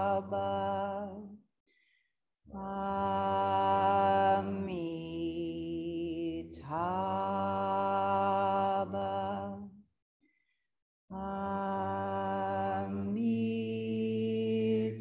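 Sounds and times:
voices chanting in unison: 2.5 - 9.6, 11.1 - 15.0.

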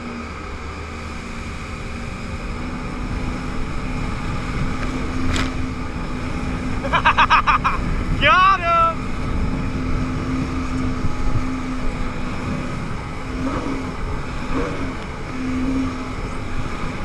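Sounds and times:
jet ski engine drone: 0.0 - 17.0
rush of spray and wind: 0.0 - 17.0.

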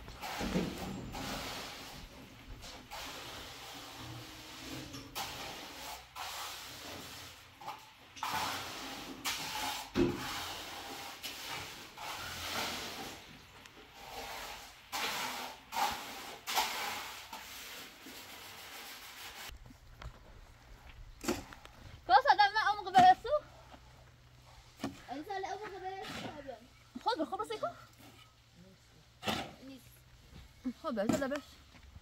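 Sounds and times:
cement scraping on floor: 0.0 - 19.6.

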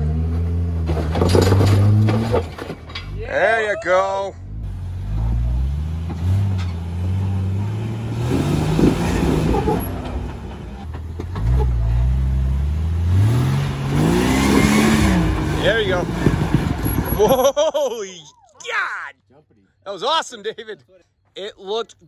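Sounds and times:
engine revving: 4.4 - 17.4.

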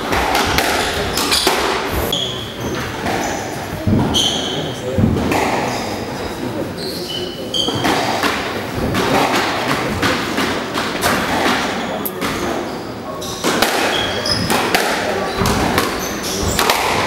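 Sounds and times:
squash ball and racket thuds: 0.0 - 6.2, 7.5 - 17.0
shoes squeaking on wooden floor: 0.8 - 5.5, 6.1 - 9.2, 11.2 - 14.6, 15.2 - 16.8.

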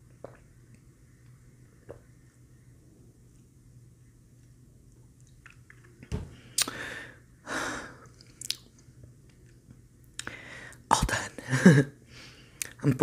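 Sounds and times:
lip smacks: 5.2 - 6.8, 8.0 - 9.5, 10.1 - 10.4.

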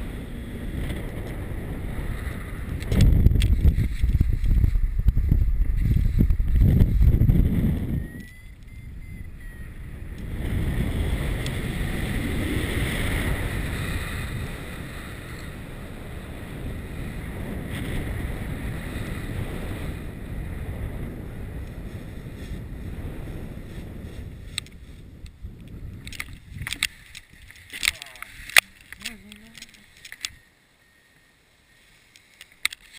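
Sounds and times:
wind rushing on microphone: 0.0 - 30.4
sharp clicks: 26.0 - 30.4.

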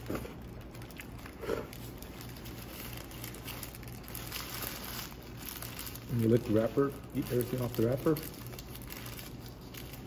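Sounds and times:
paper wrapper crinkling: 0.0 - 10.0.

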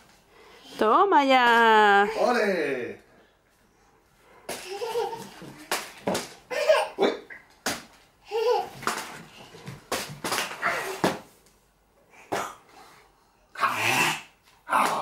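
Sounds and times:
toddler laughing and babbling: 4.5 - 5.7, 6.5 - 7.2, 8.2 - 9.5.

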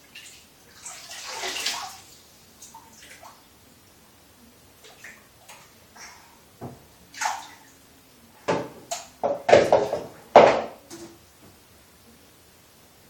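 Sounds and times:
bathwater splashing: 0.0 - 3.5, 7.1 - 7.8.

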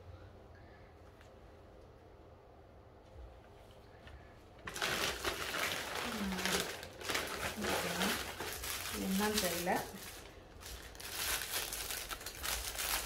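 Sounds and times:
plastic packaging crinkling: 4.6 - 13.0.

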